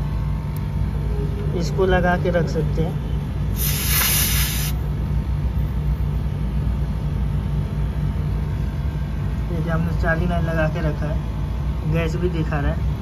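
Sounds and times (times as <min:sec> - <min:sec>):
air conditioner unit humming: 0:00.0 - 0:13.0
refrigerant gas hissing: 0:03.5 - 0:04.8.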